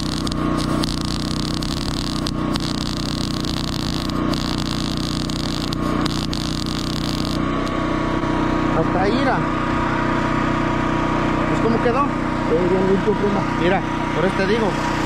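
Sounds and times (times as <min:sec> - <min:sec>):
welding arc crackling and hissing: 0:00.0 - 0:07.8
steady engine hum: 0:00.0 - 0:15.0.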